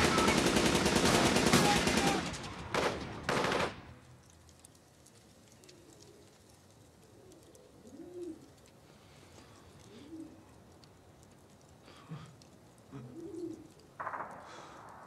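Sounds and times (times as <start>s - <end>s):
pigeon cooing: 5.5s - 10.6s, 11.8s - 14.0s.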